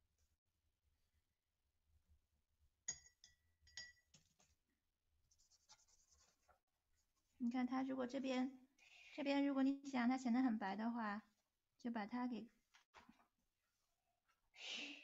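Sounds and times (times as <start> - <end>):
light ringing clinks: 2.9 - 4.0.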